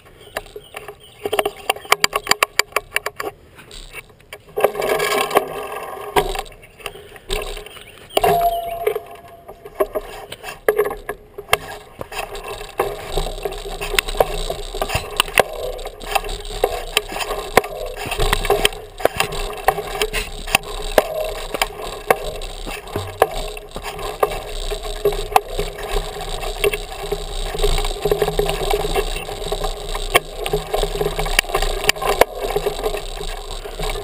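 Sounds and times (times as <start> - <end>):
bike rattling: 0.0 - 34.0
tyres crunching over gravel: 9.6 - 34.0.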